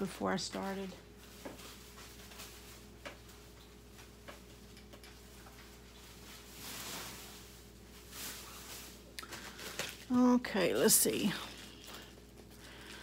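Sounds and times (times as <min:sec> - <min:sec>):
low steady hum: 0:00.0 - 0:13.0
short rustle: 0:05.6 - 0:09.8.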